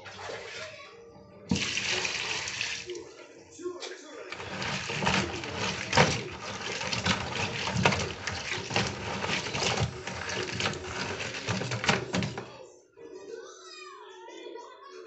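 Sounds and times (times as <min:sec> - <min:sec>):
crab shells clattering in basin: 0:04.3 - 0:12.5.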